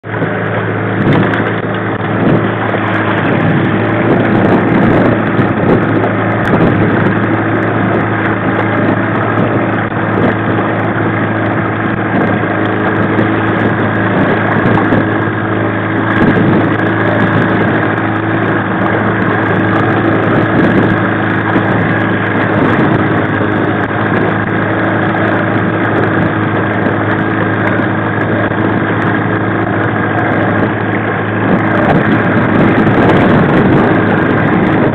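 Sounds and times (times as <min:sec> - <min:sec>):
outboard engine hum: 0:00.0 - 0:34.9
water washing along hull: 0:00.0 - 0:34.9.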